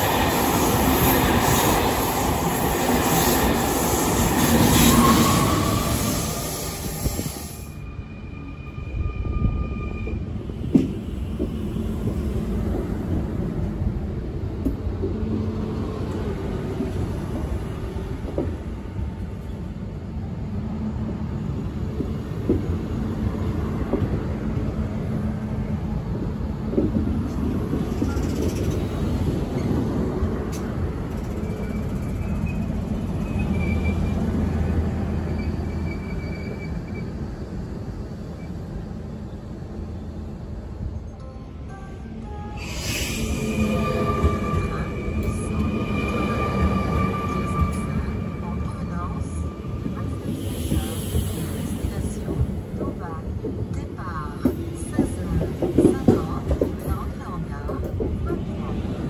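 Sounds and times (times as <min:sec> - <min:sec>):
train wheels rumbling on rail: 0:08.8 - 0:41.1, 0:42.6 - 0:59.0
high wheel squeals: 0:31.2 - 0:37.2.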